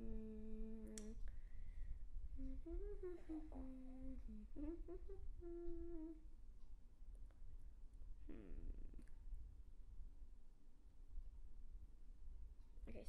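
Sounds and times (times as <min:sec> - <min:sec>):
boy humming a tune: 0:00.0 - 0:01.3, 0:02.3 - 0:06.2.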